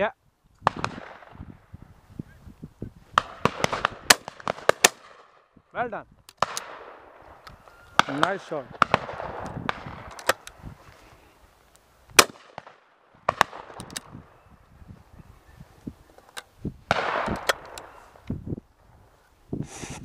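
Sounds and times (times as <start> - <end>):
distant shotgun shots: 0.6 - 1.4, 3.2 - 5.5, 6.4 - 7.3, 8.0 - 10.4, 12.2 - 14.0, 16.9 - 18.0
loud shotgun shot: 0.6 - 1.4, 3.2 - 5.4, 8.0 - 10.1, 12.2 - 13.8, 16.9 - 17.8.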